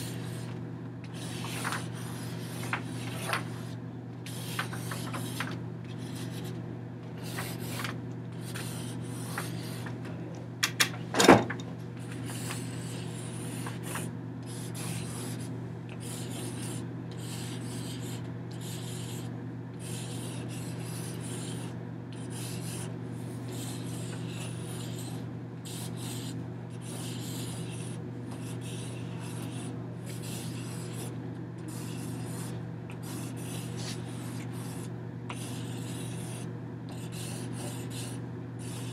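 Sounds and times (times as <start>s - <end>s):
steady low hum: 0.0s - 38.9s
hands rubbing fabric against paper: 33.7s - 34.0s.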